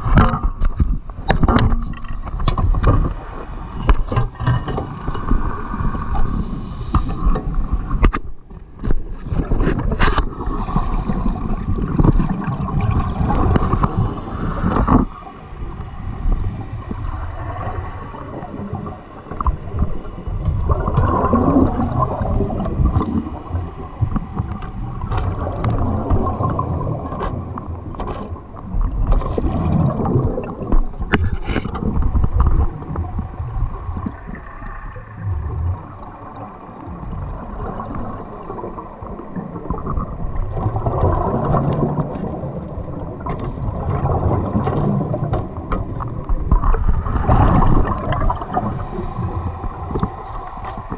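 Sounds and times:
low underwater rumble: 0.0 - 50.9
bubbling of exhaled breath: 9.1 - 15.2, 15.8 - 50.9.

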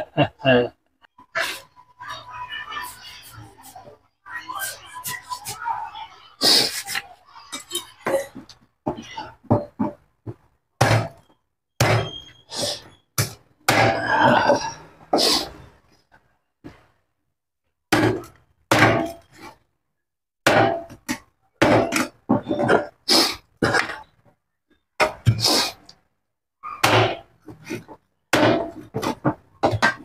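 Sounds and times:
cleaver chopping meat and bone: 10.8 - 12.2, 17.9 - 19.3, 20.4 - 22.1, 26.8 - 27.3, 28.3 - 30.0.

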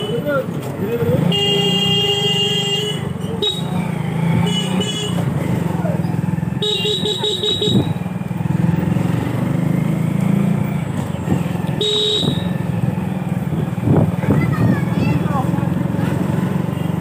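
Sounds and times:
motorcycle engine running: 0.0 - 17.0
horn short beeps: 6.6 - 8.0, 11.8 - 12.6.

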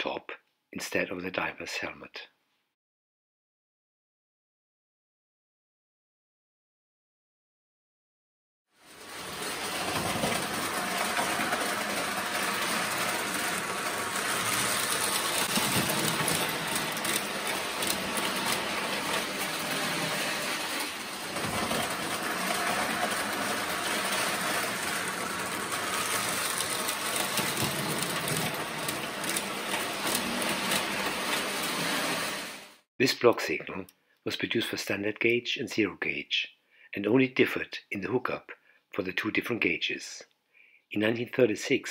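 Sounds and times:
toy train running on track: 8.8 - 32.8.

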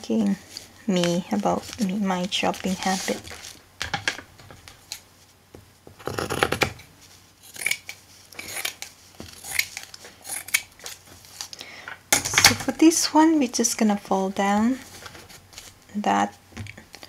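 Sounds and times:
cloth rustling: 0.0 - 11.6, 14.2 - 16.9
scissors snipping fabric: 7.5 - 10.7.

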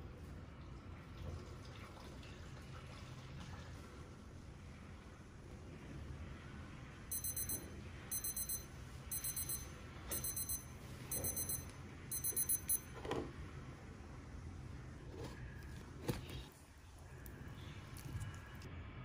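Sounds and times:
electronic timer alarm beeping: 7.1 - 13.0.

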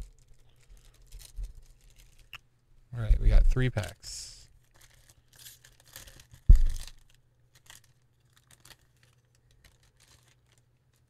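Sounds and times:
cellophane wrapper crinkling: 0.0 - 2.4, 4.5 - 11.0
dull thump: 6.5 - 6.8.

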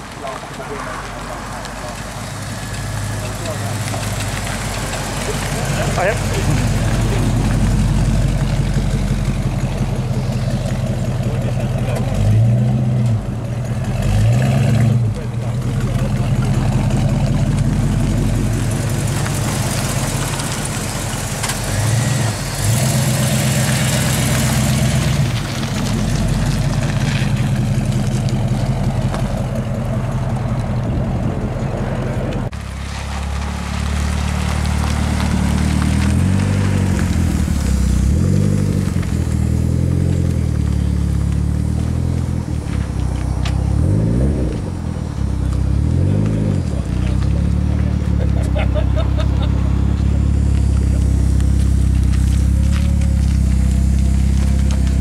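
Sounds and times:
four-cylinder engine idling with blips: 0.0 - 12.2, 15.1 - 31.8, 46.7 - 55.0
vee eight engine idling and revving: 0.0 - 55.0.

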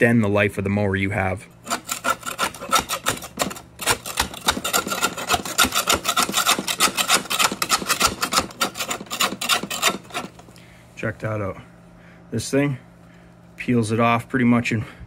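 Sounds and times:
trowel scraping grass off metal: 1.6 - 10.4.

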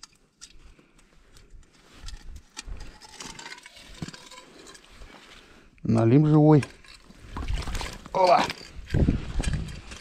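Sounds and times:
fishing line scraping through ice: 1.8 - 5.5.

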